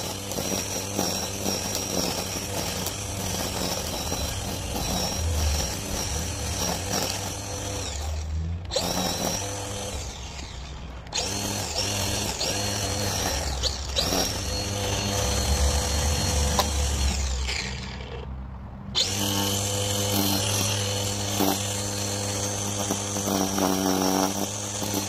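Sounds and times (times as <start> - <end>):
string trimmer cutting grass: 0.0 - 18.3, 18.9 - 25.0.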